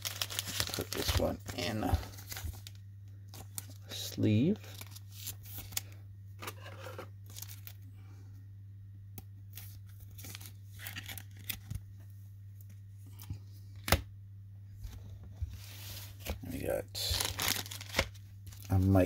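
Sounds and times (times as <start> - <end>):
cards and plastic sleeves rustling: 0.0 - 7.9, 9.5 - 12.0, 14.9 - 19.0
steady low hum: 0.0 - 19.0.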